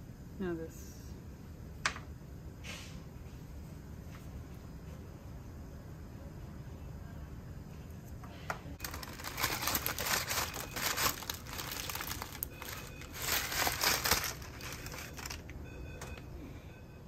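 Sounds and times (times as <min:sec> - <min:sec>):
plastic bag crinkling: 0:08.8 - 0:15.6.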